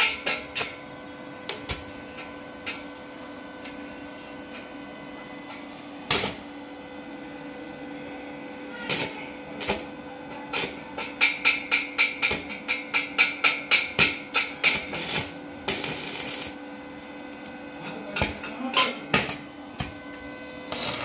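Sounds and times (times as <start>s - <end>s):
welder electrical hum: 0.0s - 21.0s
welding arc crackles: 6.1s - 6.4s, 10.5s - 13.2s, 14.0s - 18.4s, 20.7s - 21.0s.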